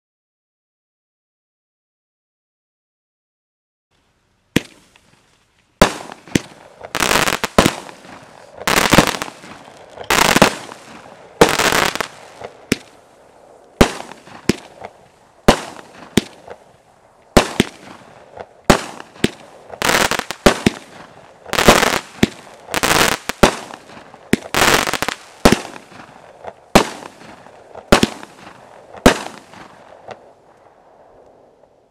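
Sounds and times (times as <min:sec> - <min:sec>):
firework crackling: 0:04.5 - 0:31.6
firework shots firing: 0:04.6 - 0:04.9, 0:05.8 - 0:13.0, 0:13.8 - 0:16.7, 0:17.3 - 0:30.3.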